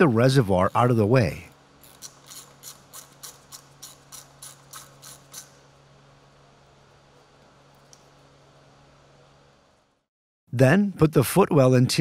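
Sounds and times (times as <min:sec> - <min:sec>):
hand ratchet clicking: 0:01.8 - 0:05.6.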